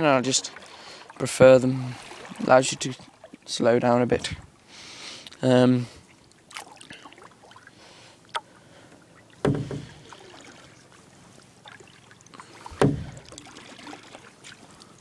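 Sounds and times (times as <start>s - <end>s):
paddle strokes in water: 0.0s - 3.5s, 8.8s - 15.0s.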